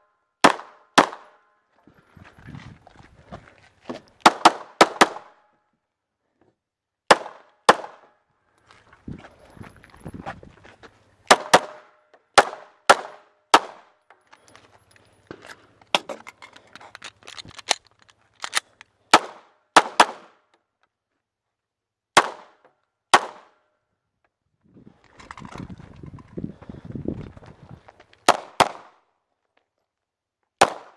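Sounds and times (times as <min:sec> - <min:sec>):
pistol gunshots: 0:00.4 - 0:01.4, 0:07.1 - 0:08.0, 0:11.3 - 0:13.9, 0:19.1 - 0:20.4, 0:22.2 - 0:23.5, 0:28.3 - 0:29.0, 0:30.6 - 0:30.9.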